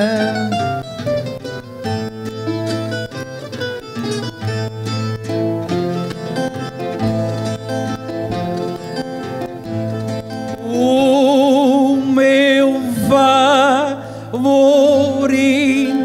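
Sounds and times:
man singing with vibrato: 0.0s - 1.0s, 10.4s - 16.0s
plucked string accompaniment: 0.0s - 16.0s.

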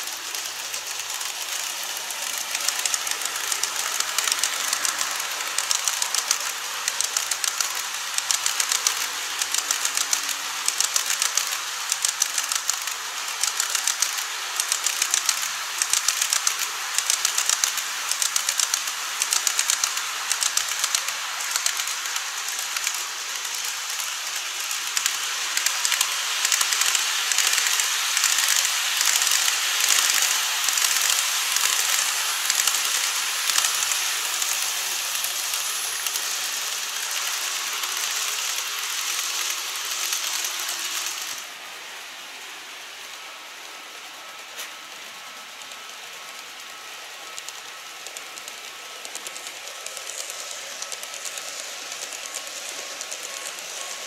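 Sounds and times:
model train wheels clicking: 0.0s - 54.0s
rolling hiss: 0.0s - 54.0s.

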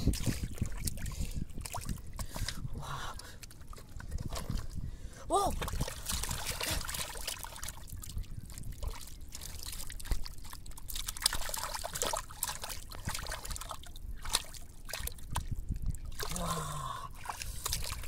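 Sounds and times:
hands squelching through mud: 5.5s - 15.5s.

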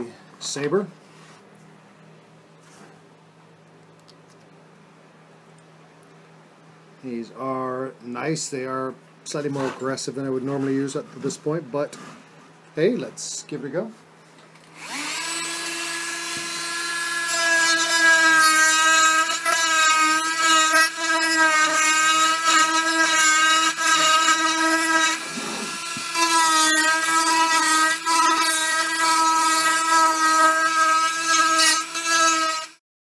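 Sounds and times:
rotary tool grinding wood: 14.8s - 32.8s.

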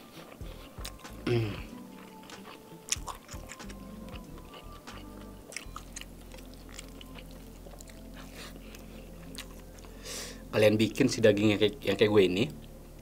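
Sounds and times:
faint background music: 0.0s - 13.0s
wet chewing with mouth clicks: 0.2s - 9.9s.

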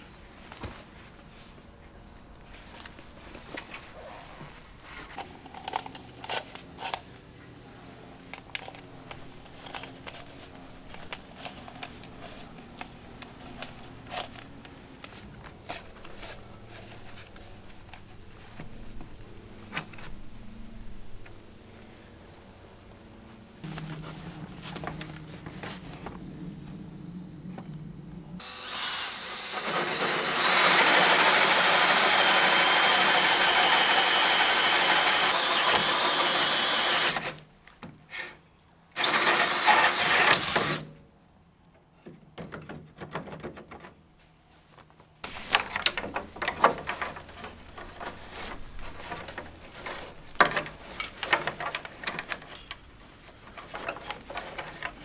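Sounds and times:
cables scraping and rustling: 0.4s - 21.4s, 44.5s - 55.0s
drill with hole saw boring wood: 28.4s - 37.4s, 39.0s - 40.9s.

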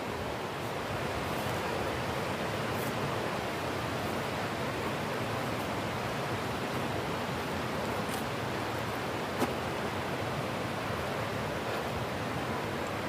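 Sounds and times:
fast-flowing mountain water: 0.0s - 13.0s.

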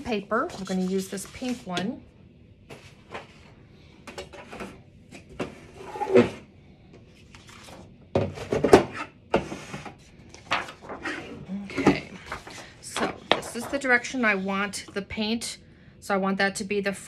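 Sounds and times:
paper rustling: 0.5s - 1.7s, 7.2s - 7.9s, 10.2s - 11.5s, 12.1s - 13.9s
knocks and clatters on table: 12.9s - 13.8s.

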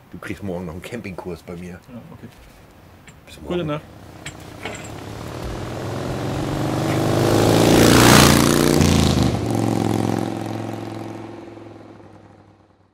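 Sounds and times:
motorcycle driving past: 3.8s - 12.9s.

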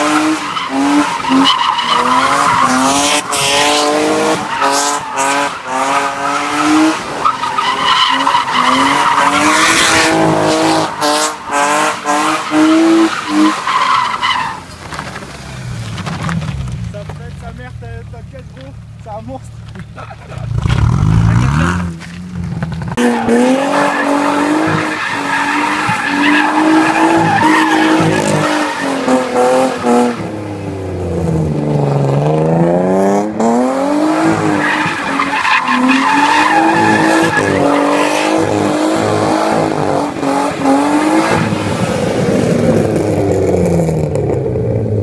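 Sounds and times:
car engine revving hard: 0.0s - 13.6s, 23.0s - 44.1s.

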